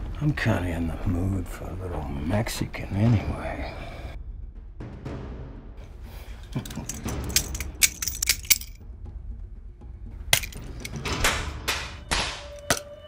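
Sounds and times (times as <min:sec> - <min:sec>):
sharp metal clink: 0:06.8 - 0:08.8.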